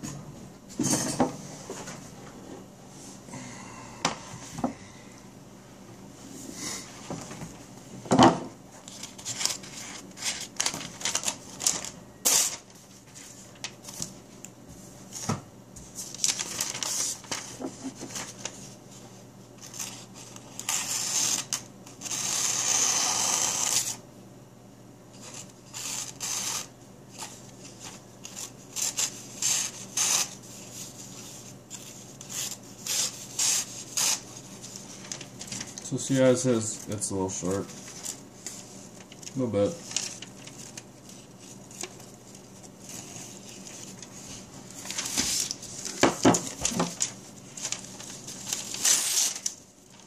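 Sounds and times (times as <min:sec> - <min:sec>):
paper rustling: 0:08.8 - 0:14.3, 0:15.2 - 0:21.6, 0:27.1 - 0:50.0
knife slicing paper: 0:09.2 - 0:12.7, 0:28.3 - 0:30.9, 0:31.8 - 0:35.2, 0:47.6 - 0:49.6.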